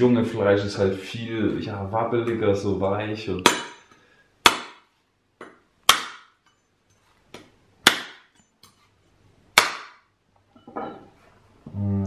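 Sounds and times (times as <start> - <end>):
knife whacking coconut: 4.4 - 4.8, 5.4 - 6.4, 7.3 - 8.3, 9.6 - 10.0.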